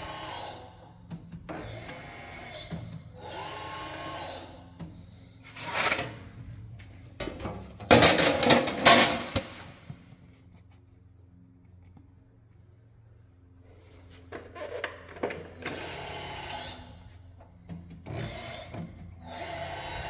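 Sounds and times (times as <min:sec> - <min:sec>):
rolling machine motor whining: 0:00.0 - 0:07.1, 0:13.4 - 0:20.0.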